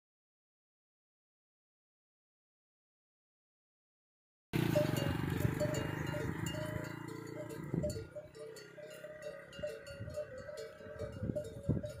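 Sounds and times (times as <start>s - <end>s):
camel bells clanking: 4.6s - 12.0s
low motor hum: 4.6s - 12.0s.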